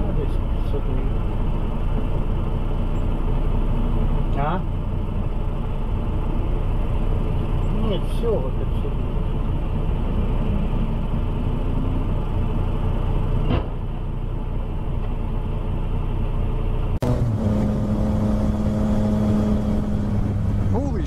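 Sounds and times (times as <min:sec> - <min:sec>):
car road and engine noise: 0:00.0 - 0:21.0
engine hum: 0:00.0 - 0:21.0.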